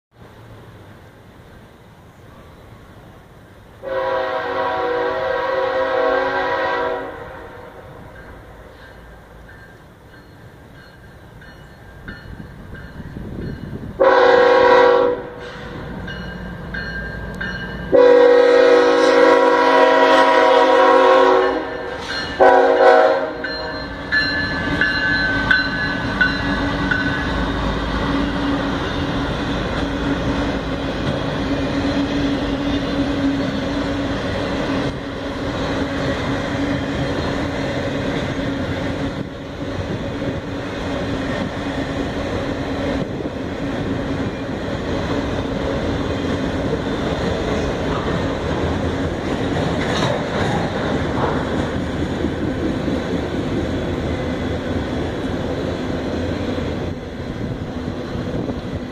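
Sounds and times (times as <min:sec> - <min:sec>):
train rolling past: 0:00.1 - 0:58.9
locomotive air horn blasts: 0:03.8 - 0:08.0, 0:14.0 - 0:15.8, 0:17.9 - 0:24.0.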